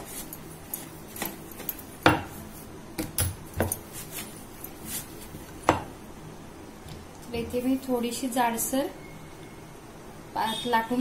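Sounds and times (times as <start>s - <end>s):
rolling pin rolling dough: 0.0s - 6.0s.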